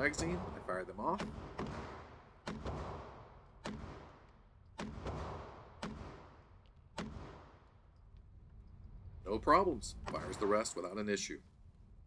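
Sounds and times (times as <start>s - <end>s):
pistol shots echoing indoors: 1.2s - 7.7s.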